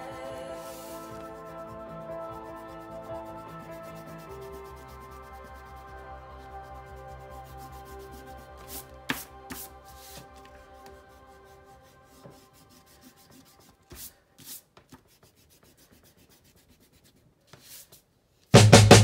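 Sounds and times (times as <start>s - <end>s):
faint music: 0.0s - 14.1s
eraser rubbing on paper: 0.6s - 18.0s.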